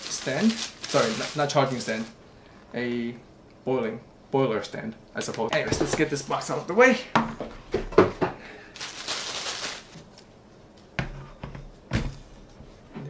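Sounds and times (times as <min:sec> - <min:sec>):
packaging rustling: 0:00.0 - 0:02.2, 0:08.7 - 0:10.3
knocks of handling objects: 0:05.2 - 0:06.2.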